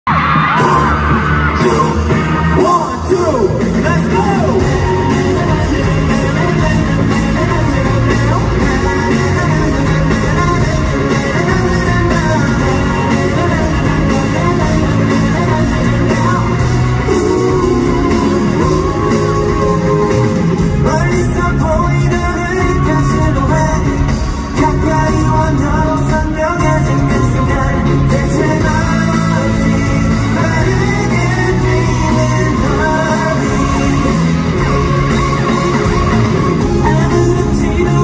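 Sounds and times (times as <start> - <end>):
crowd screaming: 0.0 - 6.4, 30.5 - 38.0
live pop music over sound system: 0.0 - 38.0
man singing into microphone: 0.5 - 34.8, 36.4 - 38.0.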